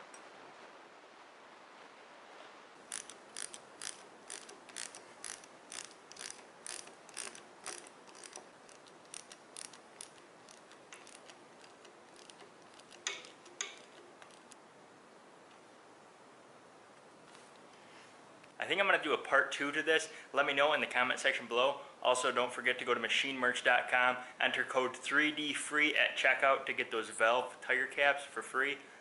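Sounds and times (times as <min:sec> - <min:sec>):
socket ratchet clicking: 0:02.9 - 0:14.6.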